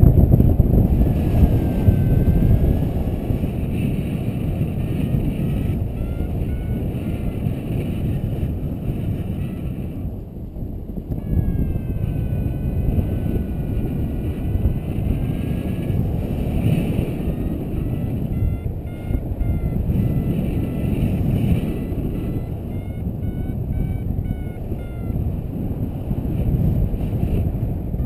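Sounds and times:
wind rushing over microphone: 0.0s - 28.0s
variometer tone and beeps: 17.9s - 25.3s.

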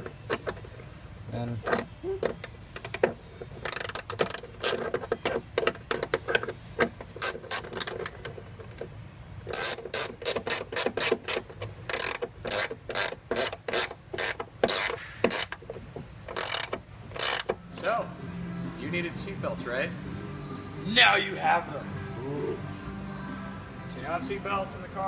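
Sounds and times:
socket ratchet clicking: 1.7s - 8.9s, 9.5s - 18.0s.

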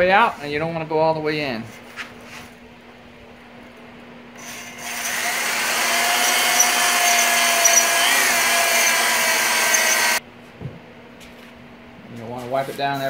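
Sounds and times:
drill spinning cylinder hone: 4.4s - 10.2s.

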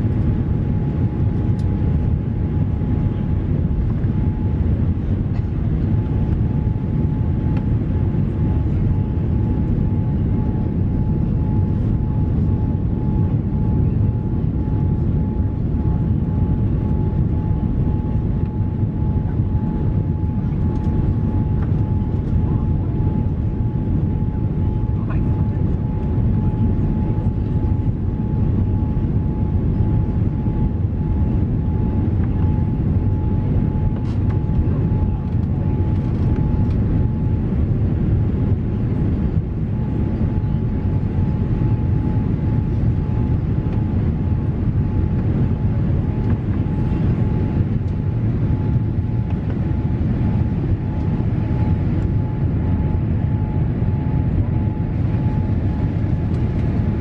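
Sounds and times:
jet engine cabin rumble: 0.0s - 57.0s.

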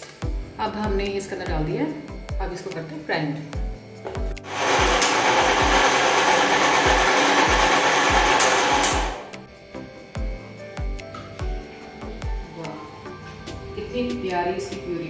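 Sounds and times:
mixer grinder running: 4.0s - 13.8s.

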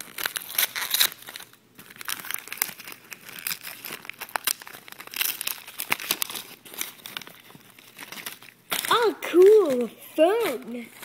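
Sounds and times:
wrapping paper tearing and crinkling: 0.0s - 11.0s.

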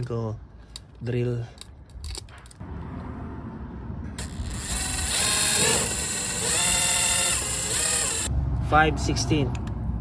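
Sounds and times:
cordless drill motor whine: 4.2s - 8.3s.

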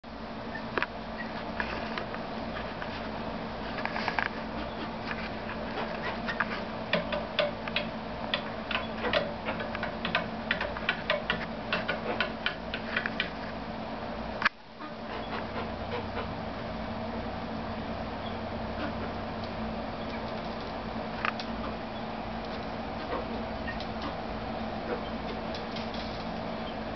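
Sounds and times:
steady low hum: 0.0s - 26.9s
chickens pecking beak taps: 5.7s - 13.4s.

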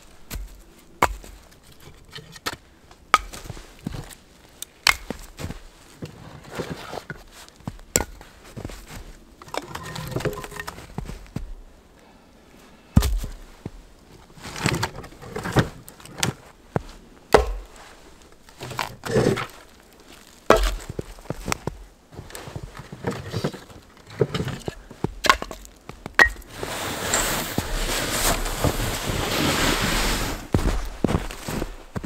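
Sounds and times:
logs knocking together: 2.4s - 3.5s, 4.8s - 5.5s, 9.4s - 11.1s, 13.0s - 13.4s, 17.3s - 17.8s, 20.3s - 21.8s, 22.6s - 26.5s
rustling: 3.3s - 11.4s, 12.6s - 32.0s
logs thudding onto snow: 4.8s - 11.6s, 13.0s - 13.8s, 14.5s - 17.9s, 18.5s - 21.8s, 22.5s - 29.8s.

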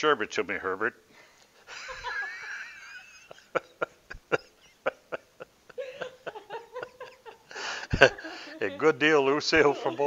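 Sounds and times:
high wavering laugh: 1.7s - 8.5s
man chuckling: 1.7s - 8.5s.

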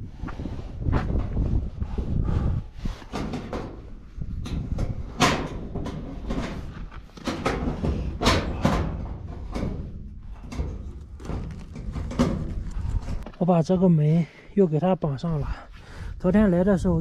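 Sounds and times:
steel door knocking and rattling: 4.6s - 12.6s.

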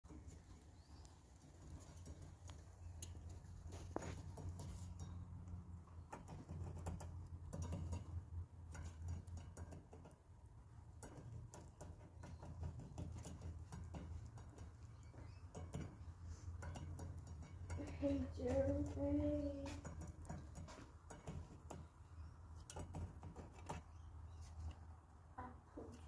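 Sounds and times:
rabbit teeth clicking on bars: 1.4s - 24.1s.

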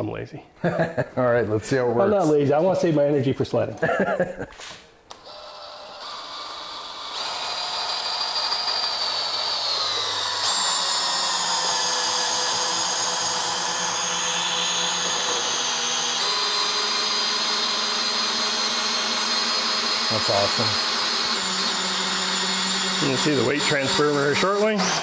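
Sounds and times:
cordless drill motor whine: 5.1s - 25.0s.

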